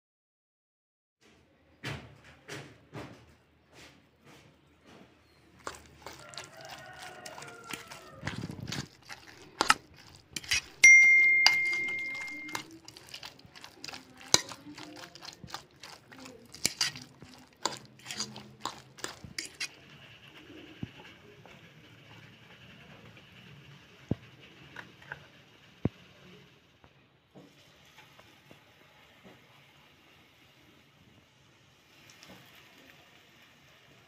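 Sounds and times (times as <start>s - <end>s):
spoon stirring batter in bowl: 3.8s - 21.2s
metallic ding: 10.8s - 12.5s.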